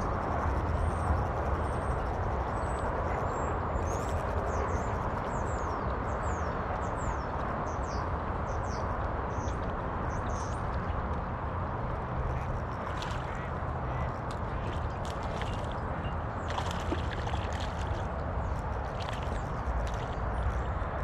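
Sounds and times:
steady rushing background noise: 0:00.0 - 0:21.0.

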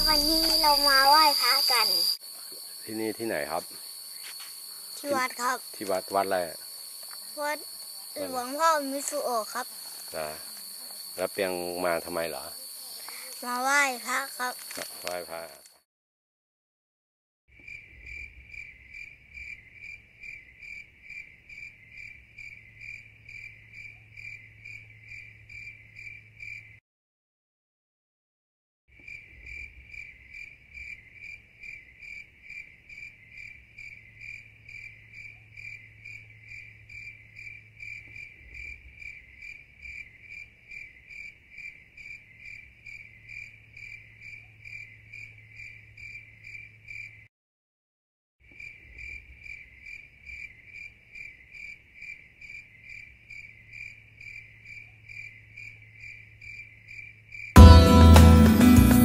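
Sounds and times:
insect chirping: 0:00.0 - 0:15.8, 0:17.5 - 0:26.8, 0:28.9 - 0:47.3, 0:48.4 - 0:57.6.

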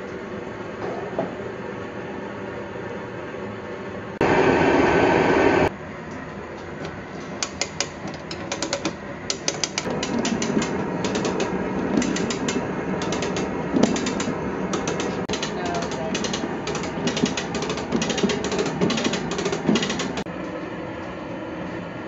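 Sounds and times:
burner flame rushing: 0:04.2 - 0:05.7
cable puller ratchet clicking: 0:07.3 - 0:20.3.

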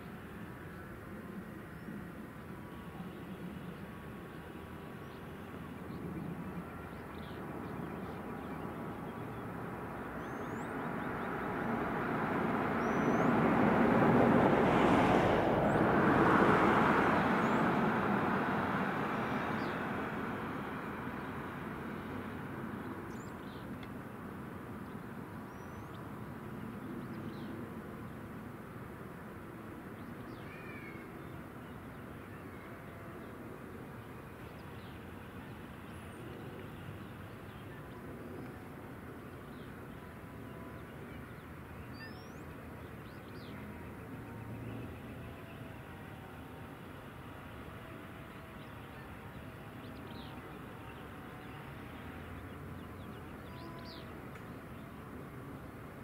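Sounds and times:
faint steady drone: 0:00.0 - 0:56.0
vehicle passing: 0:09.5 - 0:22.9.

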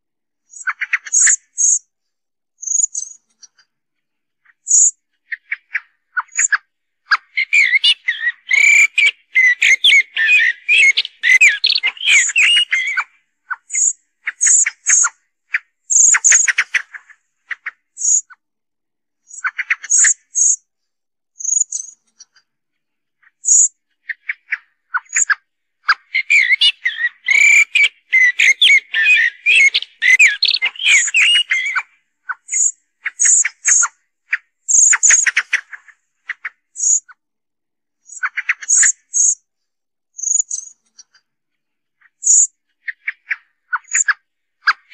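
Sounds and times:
blackbird fluty warbling song: 0:00.5 - 0:01.8, 0:02.6 - 0:03.6, 0:04.5 - 0:18.3, 0:23.4 - 0:37.1, 0:40.2 - 0:41.0
blackbird call notes: 0:07.2 - 0:13.2, 0:25.9 - 0:31.9.

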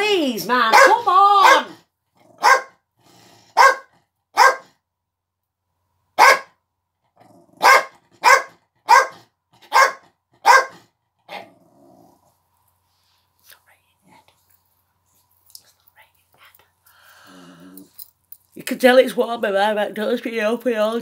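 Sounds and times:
dog barking: 0:00.7 - 0:01.8, 0:02.4 - 0:02.8, 0:03.5 - 0:04.8, 0:06.2 - 0:06.6, 0:07.6 - 0:11.5.

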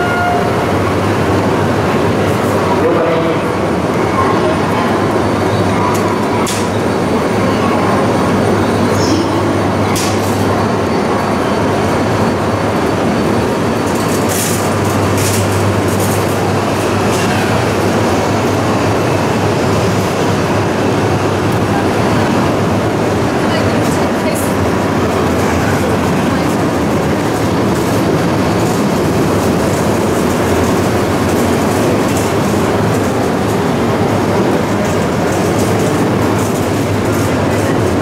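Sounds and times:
train wheels rumbling: 0:00.0 - 0:38.0.

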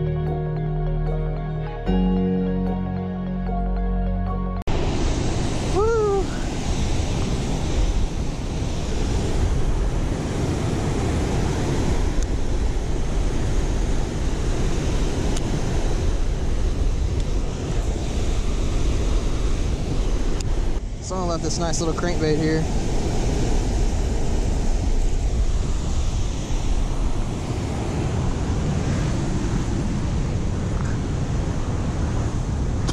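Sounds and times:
water rushing over spillway: 0:04.7 - 0:16.7
wind buffeting microphone: 0:04.7 - 0:32.9.

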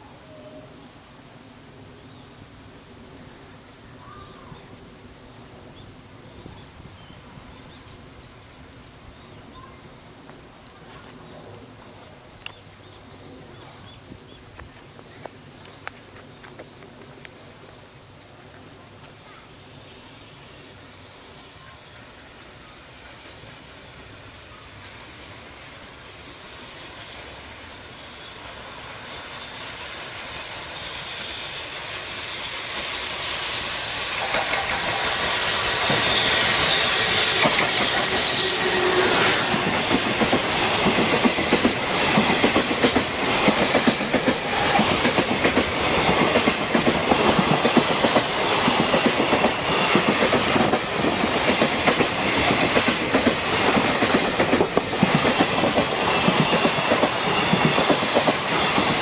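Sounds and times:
freight train passing: 0:00.0 - 0:59.0
train wheels clacking over rail joints: 0:31.0 - 0:59.0.

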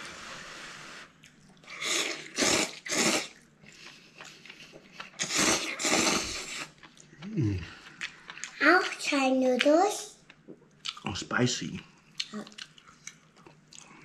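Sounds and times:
man blowing on noodles: 0:00.0 - 0:01.1, 0:01.8 - 0:03.3, 0:05.2 - 0:06.7
loud noodle slurps: 0:01.7 - 0:03.4, 0:05.2 - 0:06.7.

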